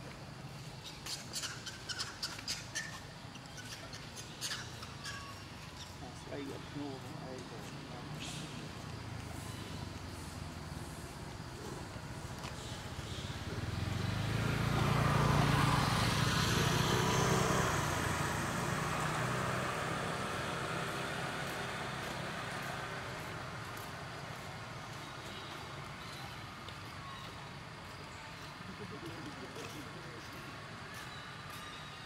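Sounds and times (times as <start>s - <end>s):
vehicle driving past: 7.9s - 25.9s.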